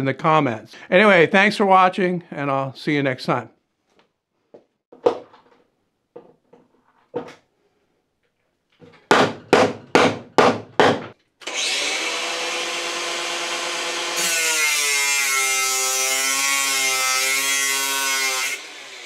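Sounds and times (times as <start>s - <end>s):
angle grinder motor whine: 11.4s - 14.3s.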